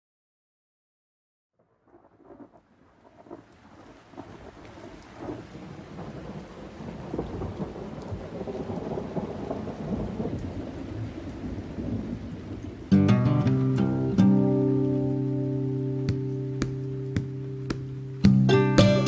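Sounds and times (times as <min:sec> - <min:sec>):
rain: 0:01.6 - 0:19.0
rumbling thunder: 0:01.8 - 0:13.0.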